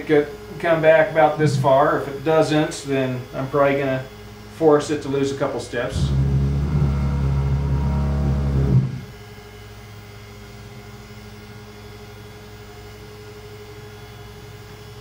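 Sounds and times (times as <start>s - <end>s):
stepper motors humming: 5.5s - 9.2s.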